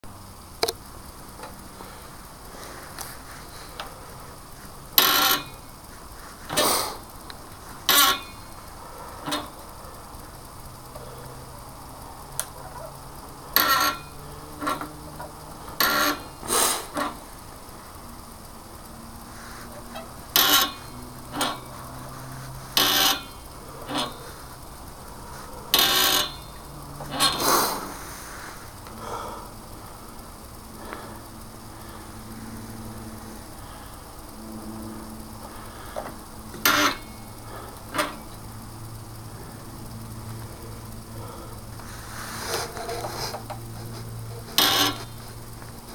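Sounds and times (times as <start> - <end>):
low steady hum: 0.0 - 45.9
lever mechanism creaking: 5.0 - 5.7, 7.8 - 8.5, 9.2 - 9.6, 12.4 - 17.3, 19.7 - 27.9, 36.0 - 37.2, 42.5 - 45.3.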